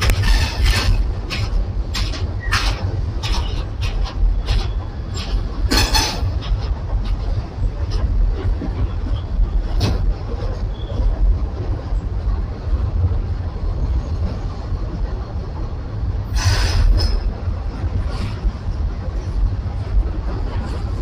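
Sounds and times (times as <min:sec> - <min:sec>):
freight train rumbling on bridge: 0:00.0 - 0:21.0.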